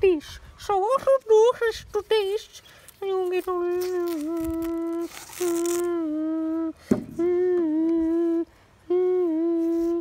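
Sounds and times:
short rustle: 0:01.2 - 0:06.0
person humming: 0:03.4 - 0:10.0.

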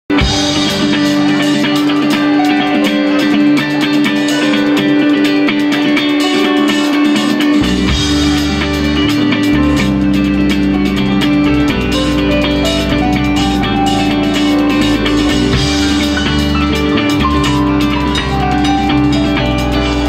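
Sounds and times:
low bass notes: 0:00.1 - 0:05.6, 0:07.4 - 0:20.0
electric guitar sustained notes: 0:00.1 - 0:20.0
steady drum beat: 0:00.1 - 0:20.0.

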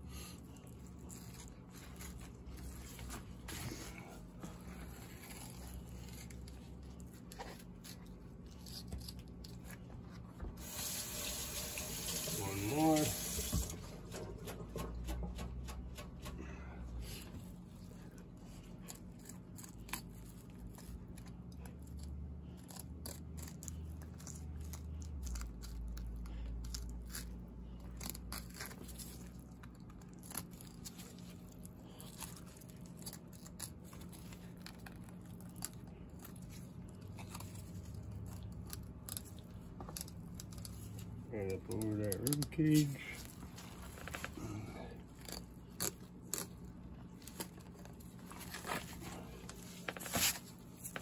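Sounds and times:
faint low hum: 0:00.0 - 0:51.0.

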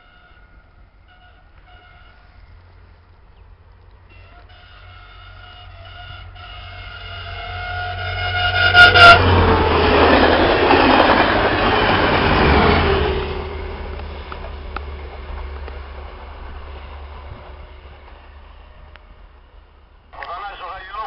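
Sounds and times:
train horn blasts: 0:00.0 - 0:02.5, 0:04.1 - 0:09.7
train engine and wheel noise: 0:00.0 - 0:21.0.

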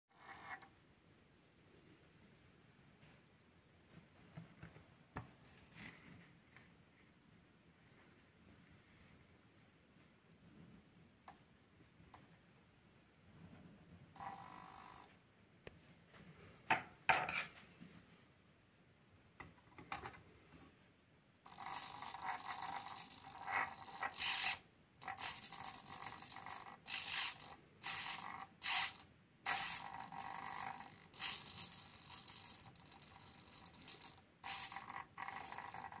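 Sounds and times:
servo whirring: 0:21.5 - 0:35.9.

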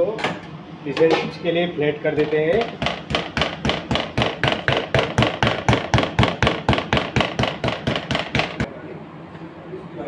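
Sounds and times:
pounding on a cutting board: 0:02.1 - 0:08.7.

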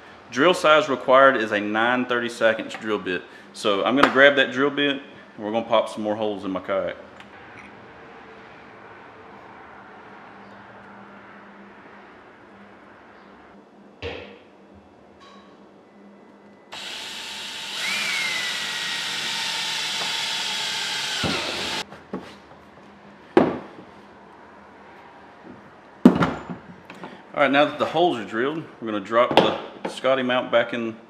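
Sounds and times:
cordless drill whining: 0:16.7 - 0:21.8.

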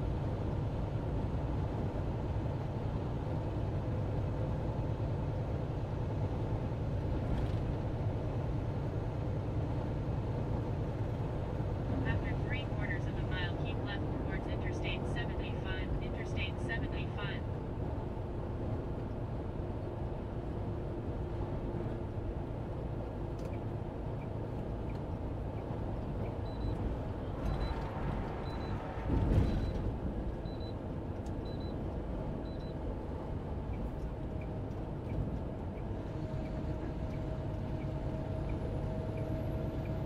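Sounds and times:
truck engine and road noise: 0:00.0 - 0:40.0
short high beeps: 0:28.4 - 0:28.8.

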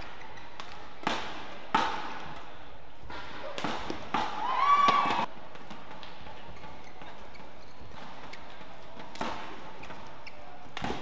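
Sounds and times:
racket striking shuttlecock: 0:00.0 - 0:07.3, 0:09.0 - 0:11.0
arena crowd noise: 0:02.2 - 0:05.3
high-pitched shout: 0:04.4 - 0:05.3.

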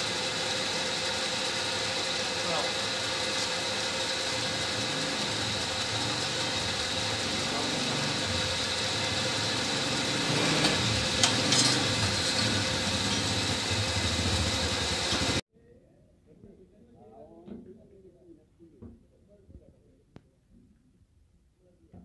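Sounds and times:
motor humming: 0:00.0 - 0:15.4.

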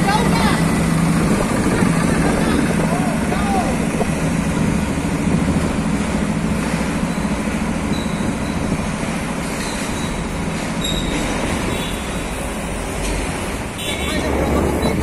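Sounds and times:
motorcycles: 0:00.0 - 0:08.4
heavy truck engine and tyres: 0:00.0 - 0:15.0.

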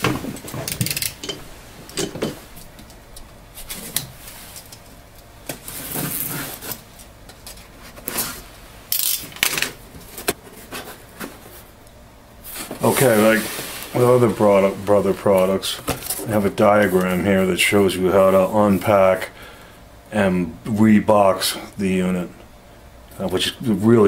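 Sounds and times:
cardboard box rustling and scraping: 0:12.5 - 0:14.7.

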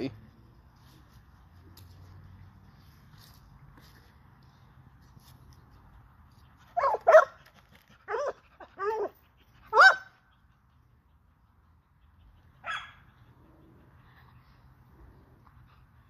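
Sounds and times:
puppy barking: 0:06.8 - 0:07.4, 0:08.1 - 0:10.3, 0:12.6 - 0:13.1.

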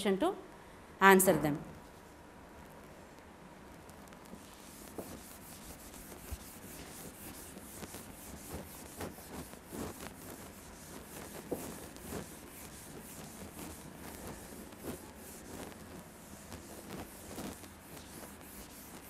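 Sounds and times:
eraser rubbing on whiteboard: 0:04.3 - 0:19.0.

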